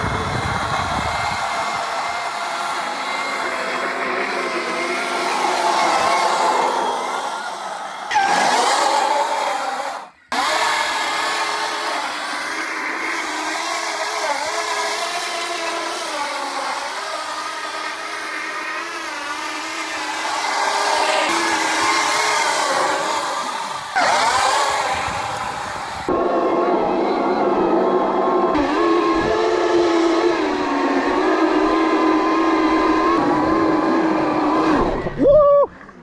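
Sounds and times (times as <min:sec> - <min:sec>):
electric motor whine: 0:00.0 - 0:36.0
tyre squealing on asphalt: 0:08.1 - 0:11.0, 0:19.9 - 0:35.3.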